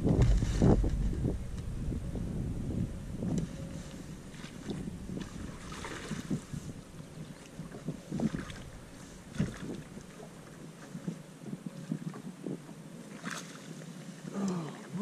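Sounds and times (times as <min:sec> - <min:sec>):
water splashing: 0:00.0 - 0:10.6
wind on microphone: 0:00.0 - 0:12.9.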